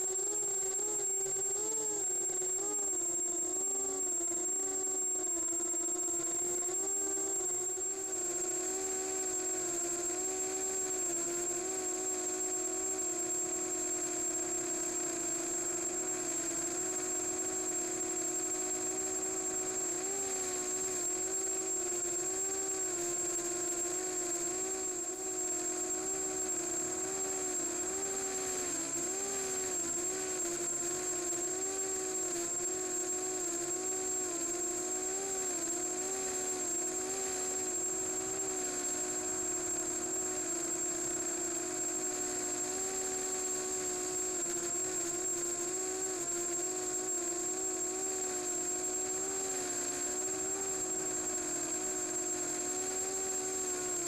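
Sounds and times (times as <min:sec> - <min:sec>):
thin high whine: 0:00.0 - 0:54.0.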